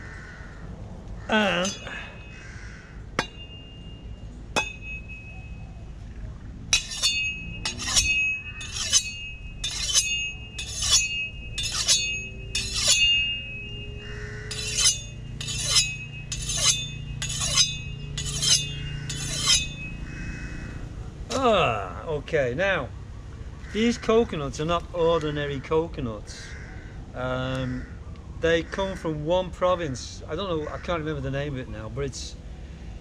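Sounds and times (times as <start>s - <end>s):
blade striking coconut: 3.2s - 3.8s, 4.6s - 5.3s, 6.8s - 20.0s.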